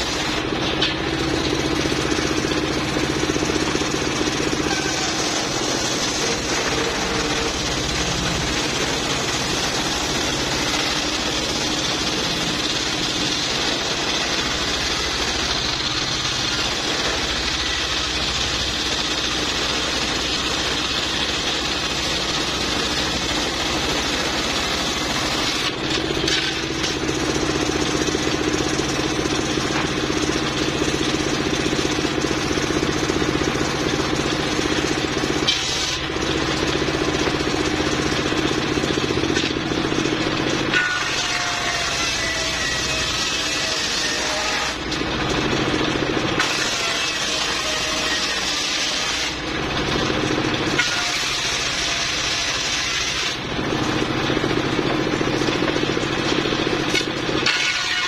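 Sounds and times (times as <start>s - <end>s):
diesel engine running: 0.0s - 58.0s
saw blade spinning free: 2.2s - 31.2s, 46.4s - 49.5s, 50.7s - 53.4s, 56.8s - 58.0s
circular saw ripping log: 2.4s - 15.2s, 24.4s - 28.8s, 35.2s - 36.9s, 40.5s - 45.1s, 46.3s - 49.6s, 50.6s - 53.5s, 56.2s - 58.0s.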